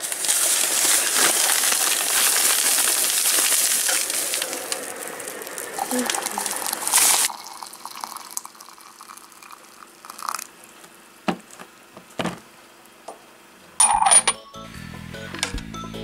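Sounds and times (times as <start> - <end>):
faint steady hum: 0.0 - 14.5
kitchen clatter: 13.8 - 14.4
utensils knocking: 13.8 - 14.4.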